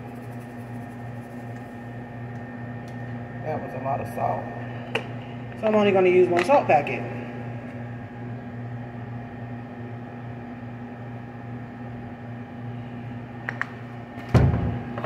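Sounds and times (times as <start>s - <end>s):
appliance electrical hum: 0.0s - 15.0s.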